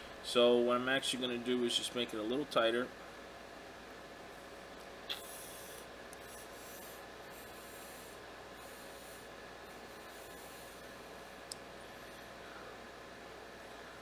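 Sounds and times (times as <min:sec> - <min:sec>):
vape coil crackling hiss: 0:05.1 - 0:11.6.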